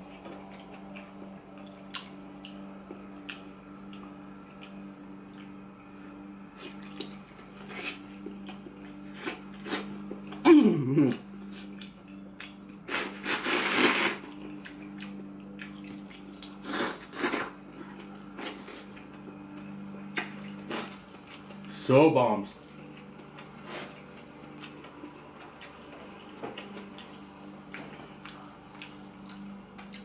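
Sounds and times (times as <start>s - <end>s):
chewing: 0.0s - 10.4s, 11.1s - 21.7s, 22.6s - 30.0s
steady low hum: 0.0s - 30.0s
blowing on food: 12.9s - 14.3s, 16.6s - 17.6s, 20.6s - 21.0s.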